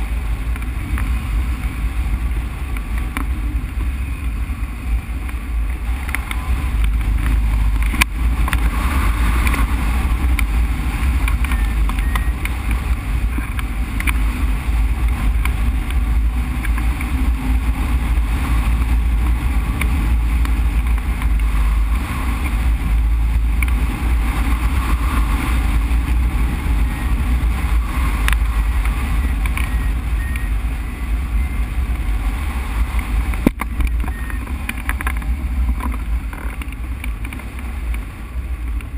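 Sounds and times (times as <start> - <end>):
wind rushing over microphone: 0.0 - 38.9
faint short beeps: 11.5 - 12.4, 29.2 - 31.7, 34.0 - 34.5.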